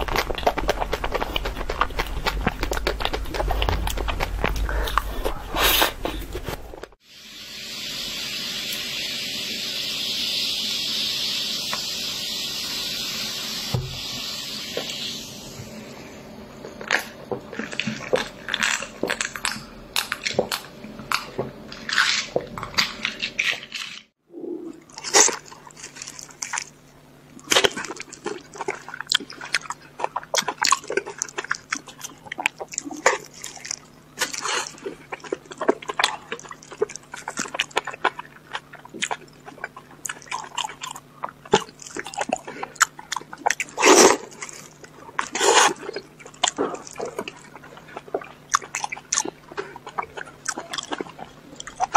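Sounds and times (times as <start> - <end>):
wet chewing and lip-smacking: 0.0 - 6.6, 27.4 - 51.9
crunching ice: 16.8 - 24.1, 24.9 - 51.9.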